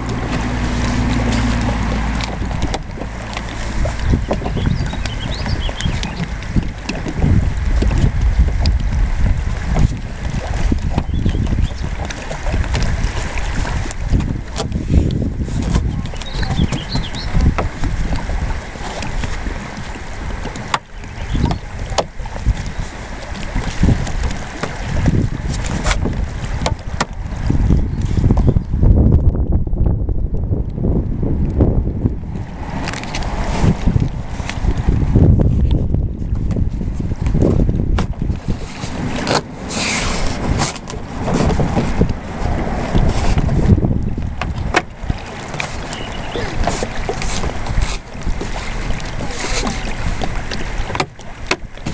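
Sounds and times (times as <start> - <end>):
wind buffeting microphone: 0.0 - 51.9
foam tubes rustling and scraping: 38.4 - 43.7.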